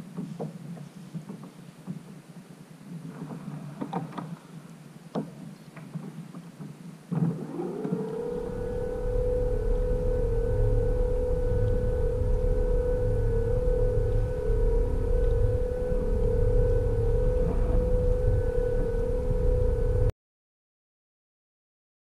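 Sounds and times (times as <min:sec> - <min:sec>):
electric outboard motor whine: 0:07.1 - 0:20.1
low hum: 0:07.1 - 0:20.1.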